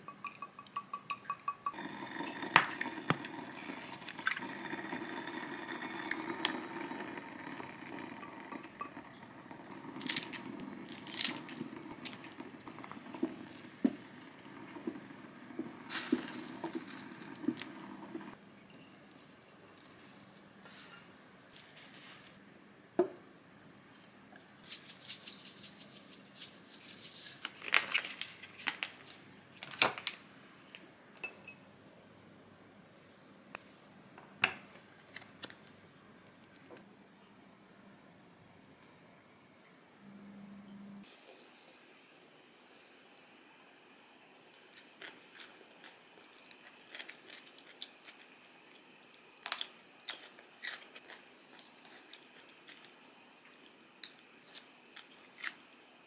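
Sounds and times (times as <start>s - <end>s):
pot on hob noise: 0.0s - 18.4s.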